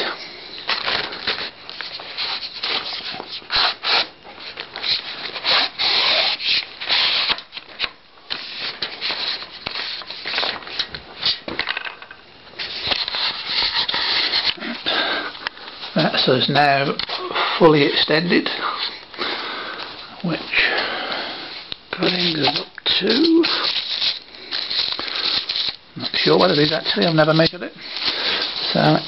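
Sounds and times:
handling scrapes: 12.6 - 15.1, 21.4 - 29.0
plastic bag crinkling: 21.9 - 29.0.

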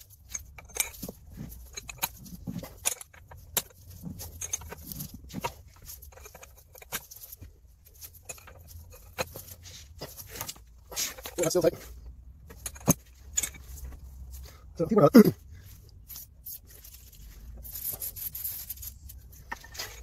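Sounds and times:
light metallic rattles: 0.0 - 20.0.

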